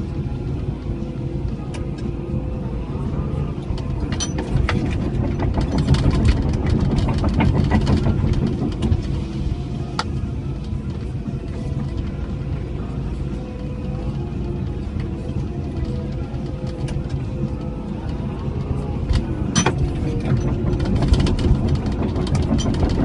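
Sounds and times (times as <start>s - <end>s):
excavator diesel engine running: 0.0s - 23.0s
dense clattering and knocks: 3.7s - 14.0s, 18.6s - 23.0s.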